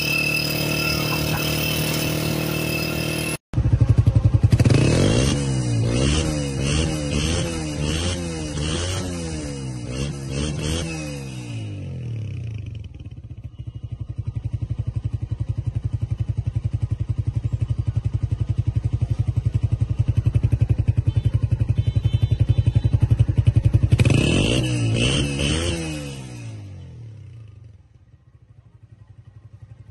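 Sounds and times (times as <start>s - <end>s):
motorcycle engine idling: 0.0s - 5.1s, 12.3s - 24.5s, 27.0s - 29.9s
engine revving: 0.0s - 12.9s, 23.6s - 26.7s.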